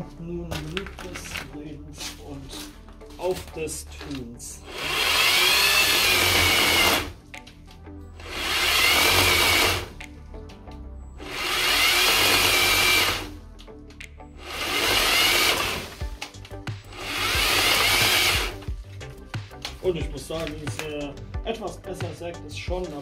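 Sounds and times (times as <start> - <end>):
electric chainsaw cutting branch: 4.6 - 7.2, 8.2 - 10.0, 11.2 - 13.4, 14.4 - 16.3, 16.9 - 18.7.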